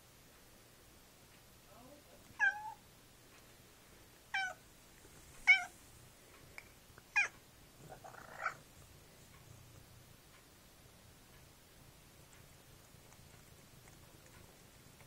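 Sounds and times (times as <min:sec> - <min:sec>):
cat meowing: 0:02.4 - 0:02.8, 0:04.3 - 0:04.6, 0:05.4 - 0:05.7, 0:07.1 - 0:08.6.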